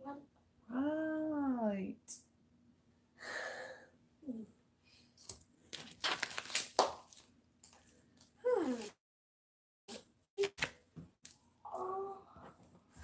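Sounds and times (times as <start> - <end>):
breathy exhale: 3.2 - 3.9
crinkling handling noise: 5.2 - 8.4.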